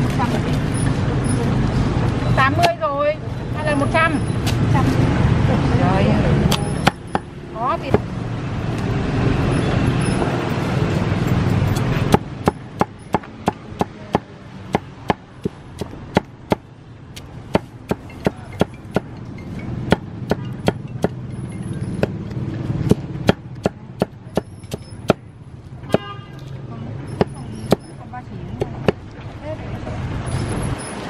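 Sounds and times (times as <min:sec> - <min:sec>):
street traffic rumbling: 0:00.0 - 0:31.0
cleaver chopping on board: 0:22.8 - 0:24.5.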